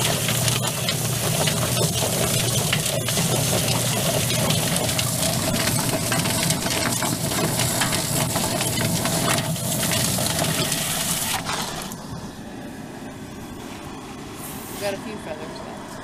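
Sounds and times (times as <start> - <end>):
hose spraying water: 0.0 - 12.0
rushing slapping clatter: 0.0 - 12.0.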